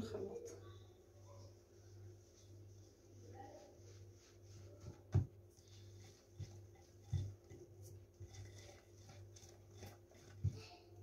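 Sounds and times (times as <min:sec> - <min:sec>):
whisk knocking bowl: 0:05.9 - 0:10.8.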